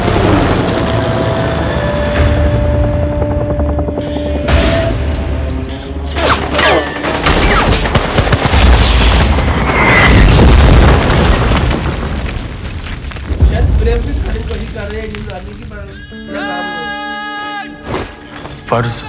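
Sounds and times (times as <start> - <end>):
dramatic music: 0.0 - 10.3
heavy booms: 9.2 - 15.3.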